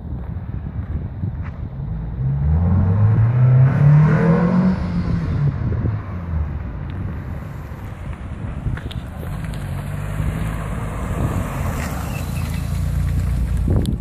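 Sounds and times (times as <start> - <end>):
car accelerating past: 2.3 - 6.3, 9.2 - 13.8.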